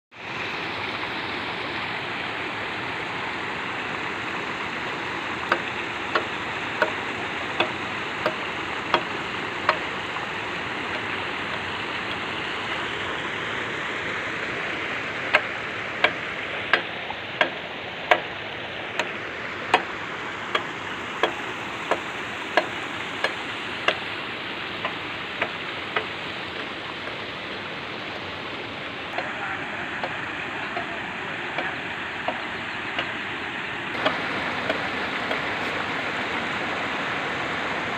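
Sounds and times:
water rushing through a net: 0:00.1 - 0:32.3, 0:32.9 - 0:37.9
sharp evenly spaced ticks: 0:05.0 - 0:12.6, 0:15.2 - 0:27.2, 0:33.9 - 0:37.5.

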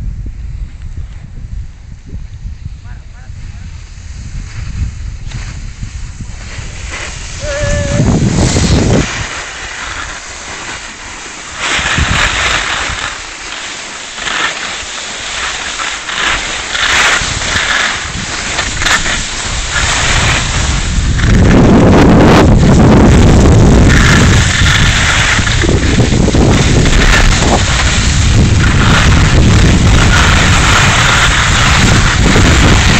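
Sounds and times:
wind buffeting the microphone: 0:00.0 - 0:13.6, 0:15.3 - 0:32.9
skis hissing over snow: 0:02.4 - 0:32.9.

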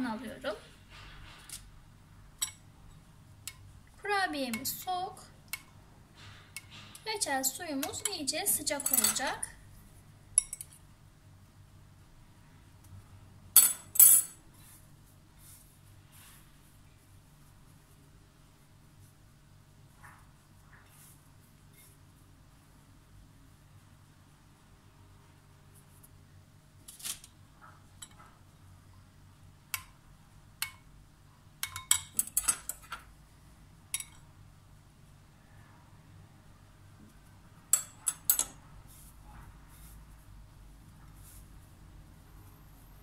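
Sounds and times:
spoon clinking against bowl: 0:34.0 - 0:34.2.

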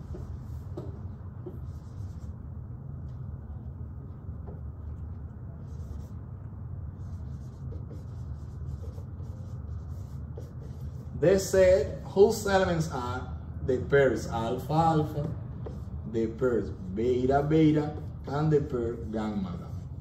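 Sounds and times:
marker writing on whiteboard: 0:00.0 - 0:02.4, 0:04.1 - 0:12.1, 0:14.6 - 0:20.0
low room hum: 0:00.0 - 0:20.0.

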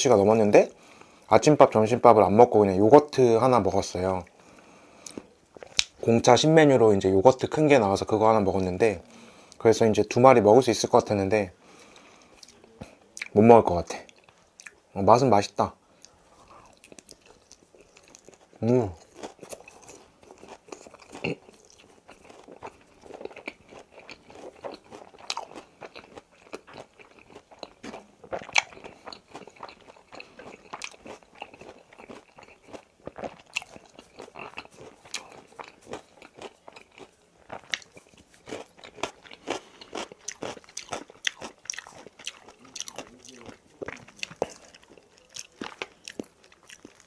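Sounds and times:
chewing and crunching: 0:04.2 - 0:06.1, 0:16.0 - 0:47.0.

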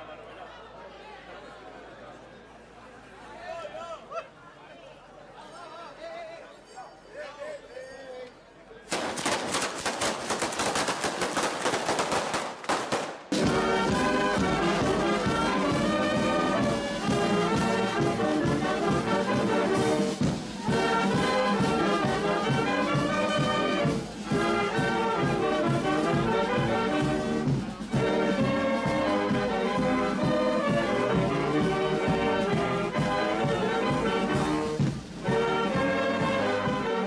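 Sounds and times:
brass band music: 0:12.0 - 0:37.0.

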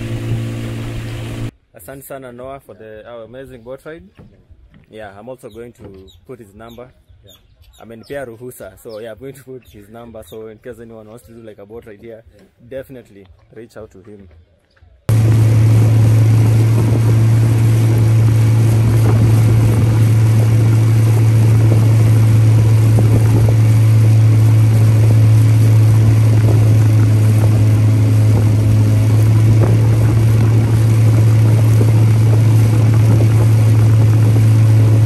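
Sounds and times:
outboard motor droning: 0:00.0 - 0:01.5, 0:15.1 - 0:35.0.

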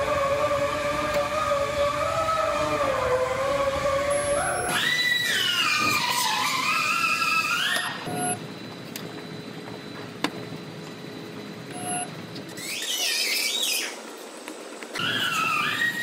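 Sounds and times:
spot welder whining: 0:00.0 - 0:09.0.

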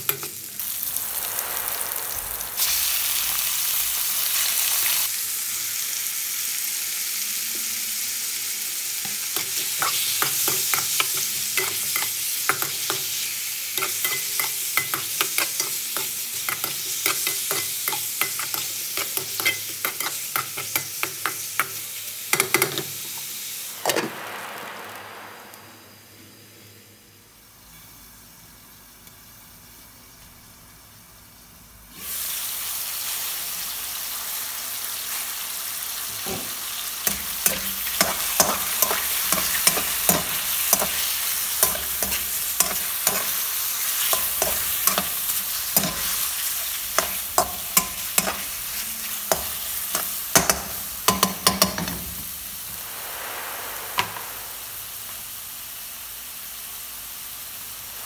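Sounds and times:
chicken sizzling in pan: 0:00.0 - 0:25.6, 0:27.9 - 0:58.0.

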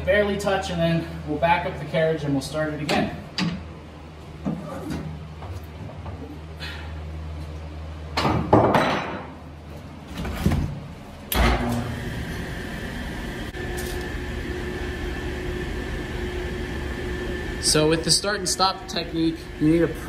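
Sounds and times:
saw running hum with whine: 0:11.4 - 0:20.0.

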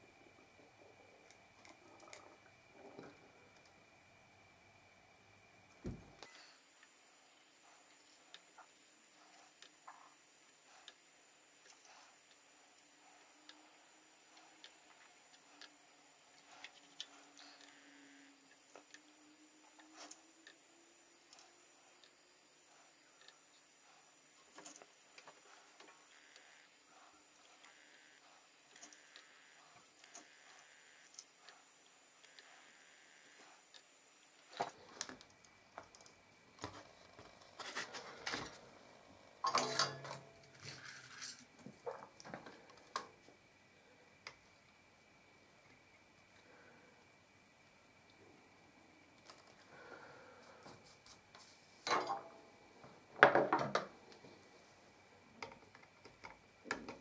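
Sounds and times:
faint steady hum: 0:00.0 - 0:57.0
soldering iron ticks and clicks: 0:10.8 - 0:12.8.

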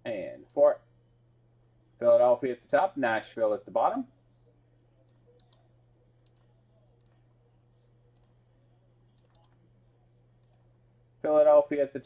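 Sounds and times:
steady low hum: 0:00.0 - 0:12.0
computer mouse clicks: 0:05.0 - 0:07.2, 0:08.1 - 0:08.4, 0:09.1 - 0:09.6, 0:10.4 - 0:10.7.

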